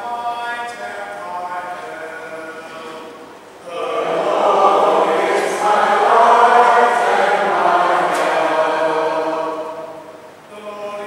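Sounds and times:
group chanting with held notes: 3.6 - 10.4.

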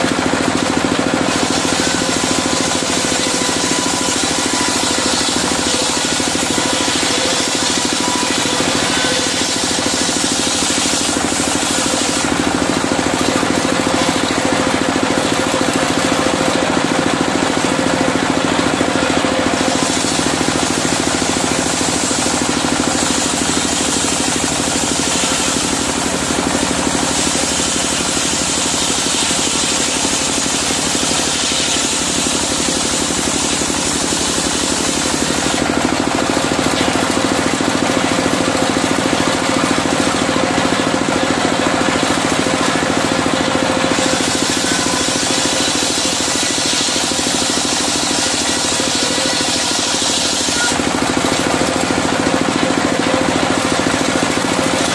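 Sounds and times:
circular saw cutting wood: 0.0 - 54.9
diesel engine running: 0.0 - 54.9.

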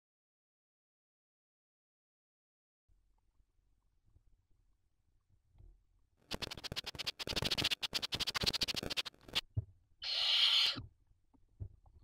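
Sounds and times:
owl hiss: 6.3 - 9.4, 10.0 - 10.8
owl rasping clicks: 6.3 - 9.4, 10.0 - 10.8.

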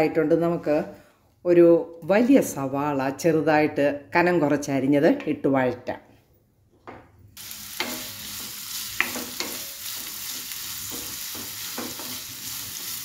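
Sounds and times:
onions sizzling in hot oil: 7.4 - 13.0
wooden spatula knocking and scraping: 9.0 - 10.1, 10.9 - 12.3.

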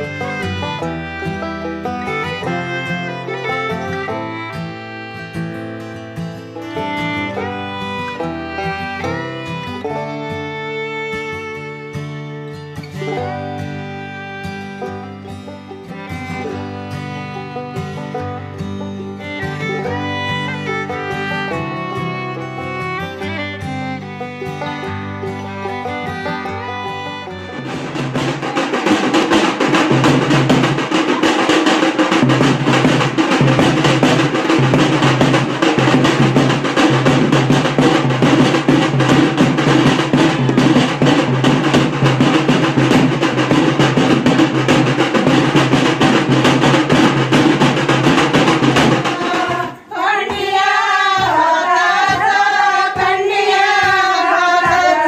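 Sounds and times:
drums beaten with sticks: 0.0 - 4.5, 5.3 - 10.4, 19.2 - 55.0
voices singing: 48.6 - 55.0.

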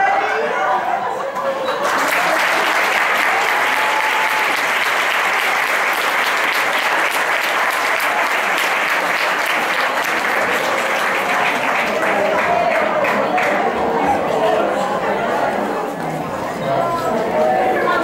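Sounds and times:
audience applauding: 1.5 - 14.7.

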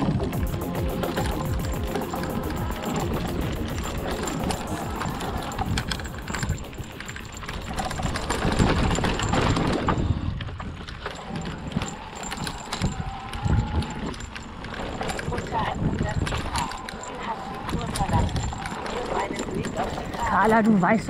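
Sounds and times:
wind on microphone: 0.0 - 20.7
bike chain and frame rattling: 0.0 - 21.0
bike tyres rolling on dirt: 0.0 - 21.0.

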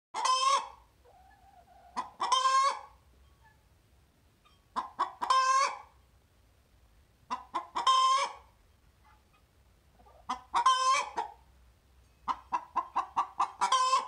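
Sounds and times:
hen cackling and clucking: 0.2 - 3.7, 4.4 - 6.0, 7.2 - 11.5, 12.2 - 14.0.

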